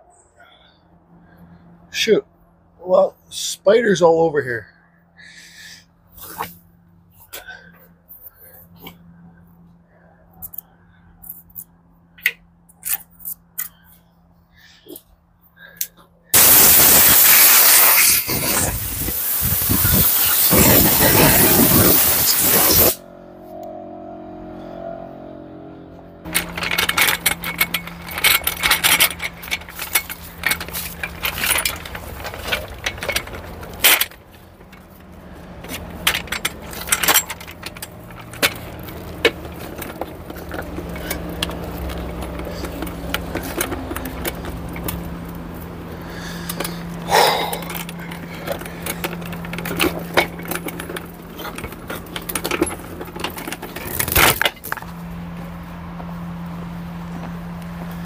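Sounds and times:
loud hiss: 16.4 - 23.0
metal hand truck rattling: 26.3 - 54.9.

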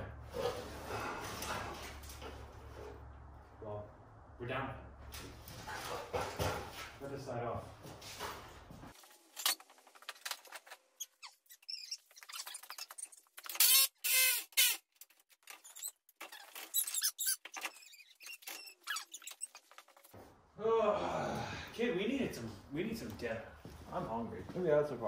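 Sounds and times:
metallic squeaks: 11.0 - 14.7, 15.6 - 20.0.

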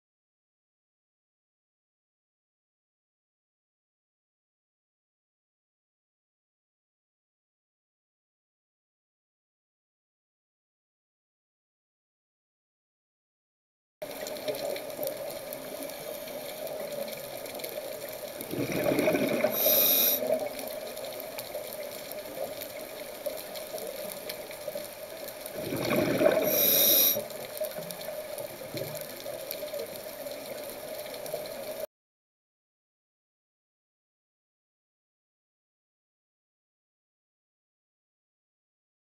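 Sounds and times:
exhaled bubbles underwater: 14.0 - 31.8
steady underwater hum: 14.0 - 31.8.

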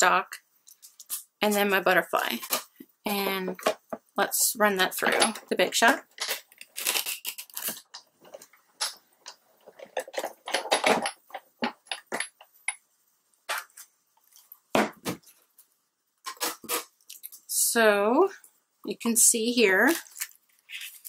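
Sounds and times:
plastic plates clacking: 7.7 - 12.5.

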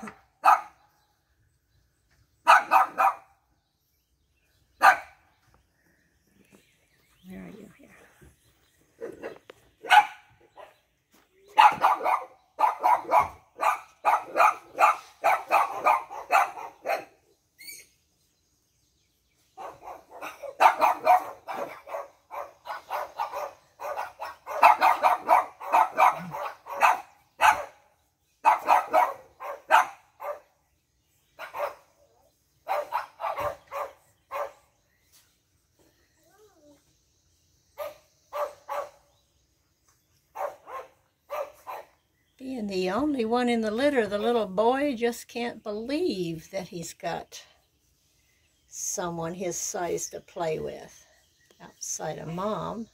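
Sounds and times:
puppies yapping: 11.5 - 17.9, 32.7 - 34.6.

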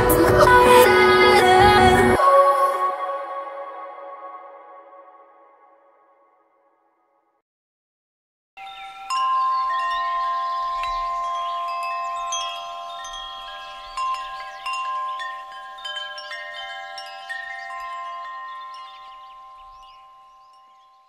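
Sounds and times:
wind chimes ringing: 8.6 - 21.0.

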